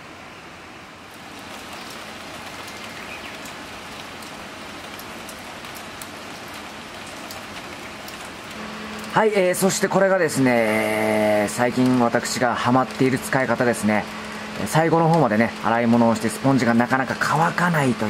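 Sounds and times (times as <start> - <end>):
rain falling: 0.0 - 18.0.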